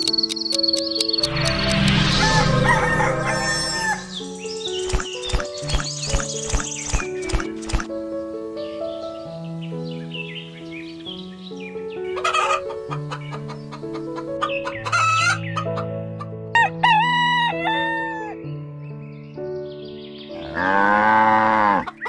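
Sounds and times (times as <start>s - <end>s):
gentle background music: 0.0s - 22.0s
rooster crowing: 2.1s - 4.2s
hens clucking: 12.2s - 16.3s.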